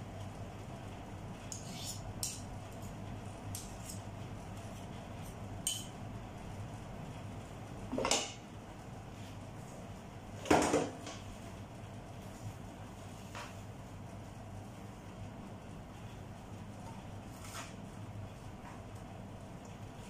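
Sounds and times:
spoon scraping food: 1.6s - 2.4s.

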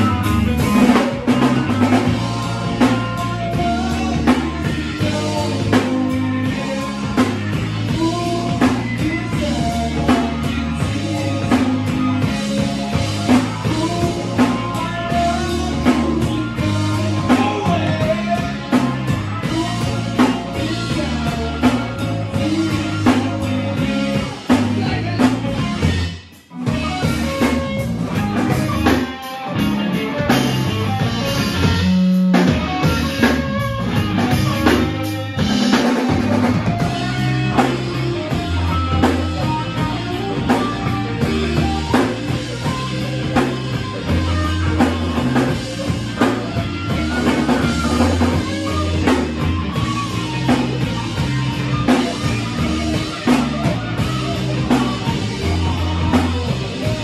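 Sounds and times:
rock band playing live: 0.0s - 57.0s.

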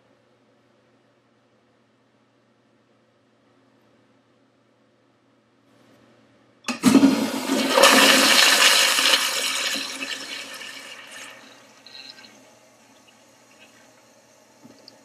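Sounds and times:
toilet flushing: 6.7s - 15.0s.

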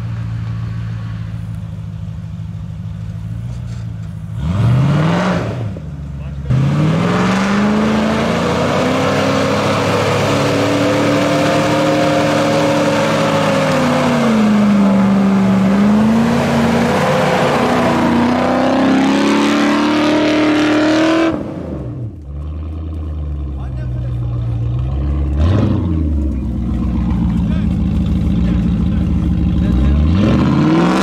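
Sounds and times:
engine revving hard: 4.4s - 5.8s, 6.4s - 22.2s, 24.9s - 26.2s, 28.4s - 31.0s.

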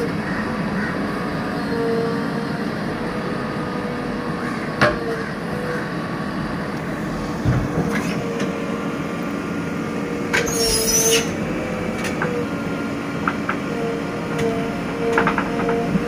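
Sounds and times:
diesel engine under load: 0.0s - 16.0s
wavering hydraulic whine: 6.7s - 16.0s.

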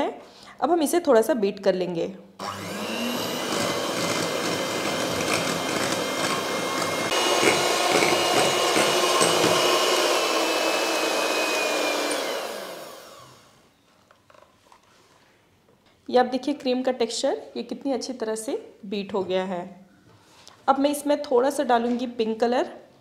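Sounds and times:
electric hand mixer whirring: 2.4s - 13.6s.

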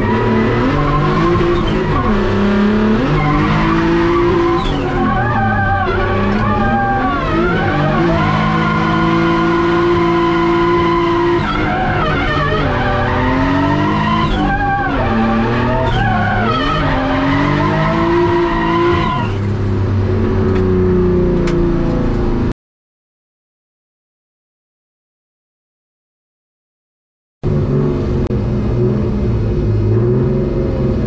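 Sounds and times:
tyres squealing: 0.0s - 19.4s
turbocharged engine revving: 0.0s - 22.0s.

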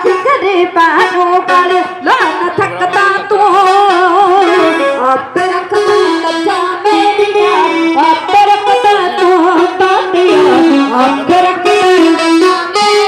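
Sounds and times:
wavering vibrato melody: 2.8s - 13.0s.

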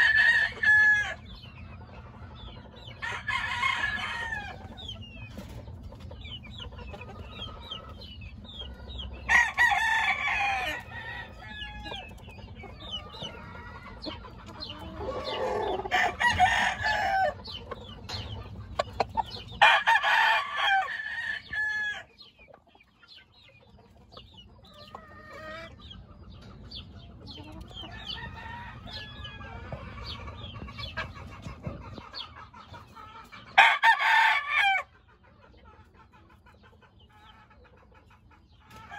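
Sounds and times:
roosters crowing: 0.0s - 1.4s, 2.8s - 5.0s, 8.8s - 22.3s, 27.3s - 30.2s, 33.4s - 35.0s
chickens clucking: 0.0s - 38.9s.

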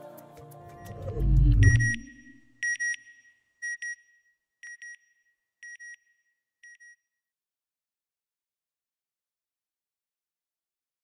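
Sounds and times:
short high electronic beeps: 0.7s - 3.0s.

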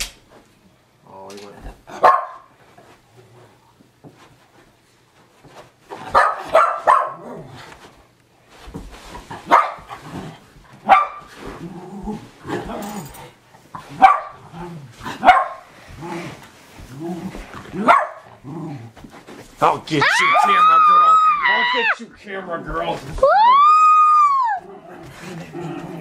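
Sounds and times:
dog barking: 1.9s - 2.5s, 6.1s - 7.3s, 9.5s - 9.9s, 10.8s - 11.2s, 14.0s - 14.4s, 15.2s - 15.6s, 17.8s - 18.3s
dog growling: 11.4s - 13.4s, 14.4s - 15.2s, 15.9s - 19.0s, 24.6s - 26.0s.

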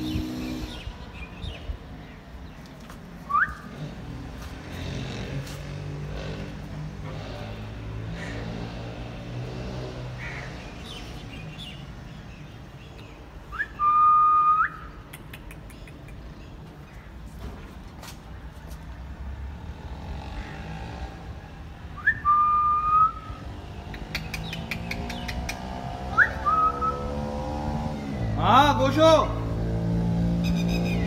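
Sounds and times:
person whistling: 13.5s - 14.8s, 22.0s - 23.3s, 26.2s - 27.1s.

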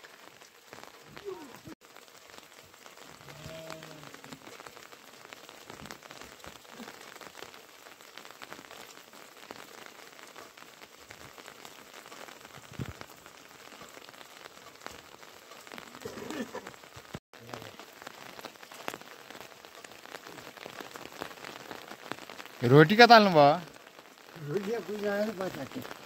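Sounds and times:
raindrops ticking on surfaces: 0.0s - 26.0s
steady rain: 0.0s - 26.0s.

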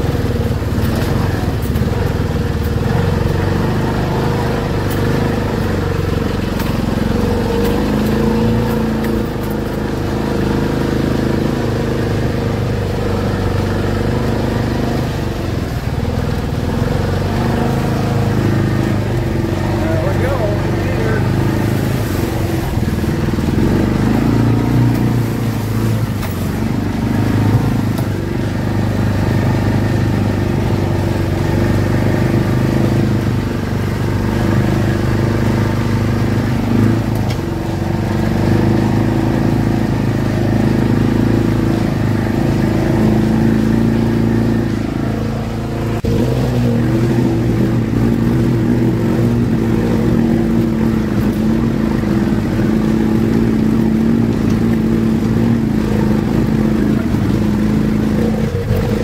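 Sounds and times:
utility vehicle engine running: 0.0s - 59.0s.

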